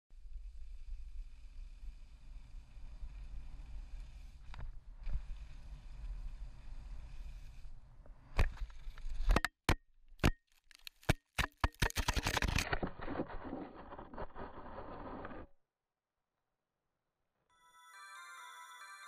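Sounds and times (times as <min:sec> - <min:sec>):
skis sliding over snow: 0:00.3 - 0:09.3.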